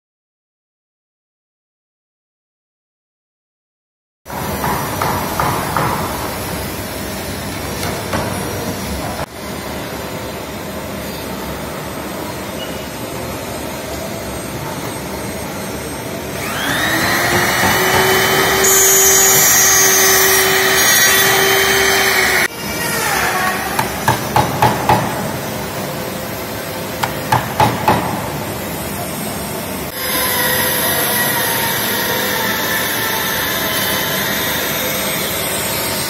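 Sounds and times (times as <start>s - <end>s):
steady machine noise: 6.4s - 22.5s
electric router whining: 16.3s - 22.5s
power saw cutting wood: 16.4s - 24.0s.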